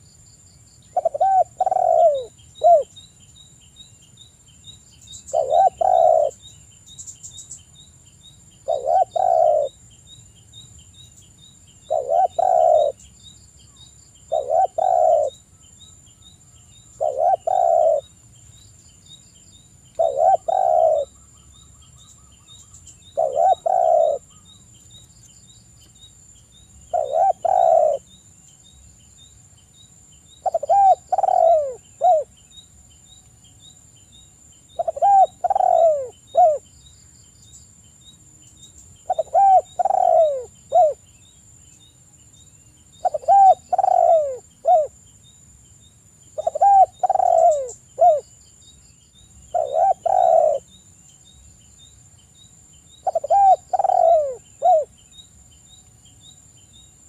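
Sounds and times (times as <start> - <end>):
dove cooing: 0.9 - 2.9, 5.3 - 6.4, 8.6 - 9.8, 11.9 - 13.0, 14.3 - 15.4, 17.0 - 18.1, 20.0 - 21.2, 23.1 - 24.4, 26.9 - 28.0, 30.4 - 32.3, 34.8 - 36.6, 39.1 - 41.0, 43.0 - 45.0, 46.4 - 48.2, 49.5 - 50.7, 53.0 - 54.9.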